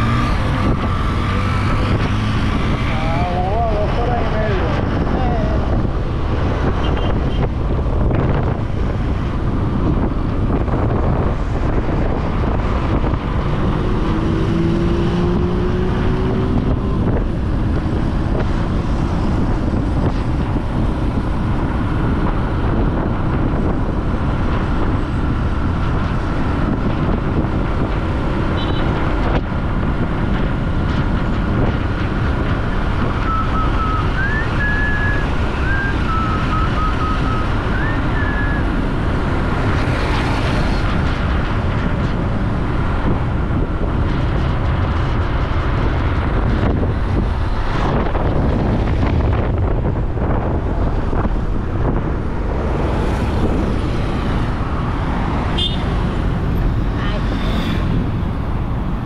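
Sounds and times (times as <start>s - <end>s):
motorcycle engine: 0.0s - 3.6s, 52.4s - 59.0s
surrounding traffic: 0.0s - 59.0s
wind rushing over microphone: 0.0s - 59.0s.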